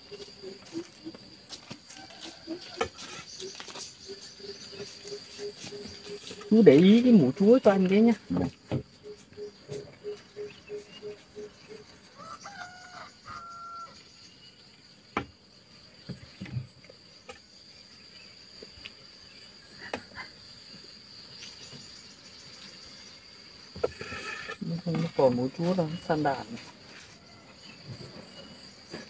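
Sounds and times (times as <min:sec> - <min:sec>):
high insect drone: 0:00.0 - 0:29.0.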